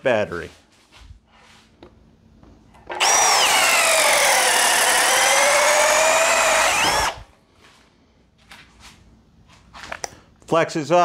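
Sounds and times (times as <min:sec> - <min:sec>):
drill motor whine: 0:02.9 - 0:07.3.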